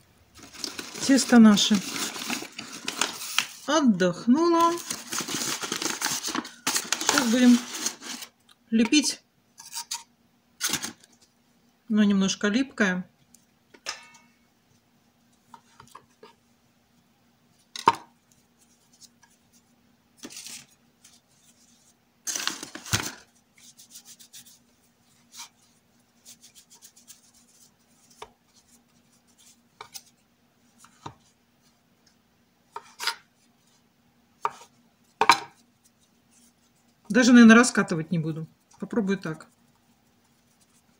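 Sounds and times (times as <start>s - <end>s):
knife scraping on board: 9.6s - 10.8s, 32.8s - 33.3s.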